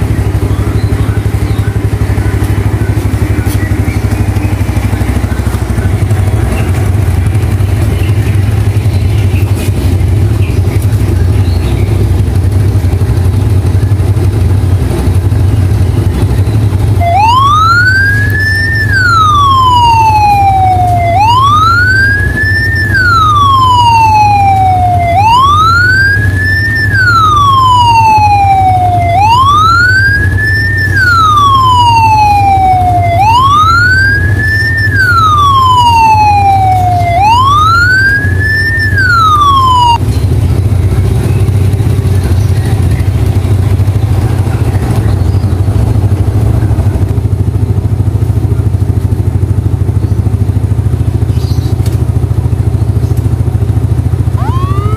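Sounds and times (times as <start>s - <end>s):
siren horn wailing: 0.0s - 9.4s, 16.6s - 40.0s, 53.7s - 54.9s.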